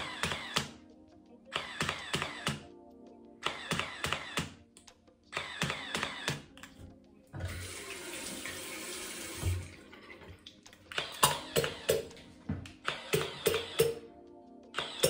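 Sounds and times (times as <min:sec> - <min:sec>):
background music: 0:00.0 - 0:15.0
water splashing into sink: 0:07.4 - 0:10.6.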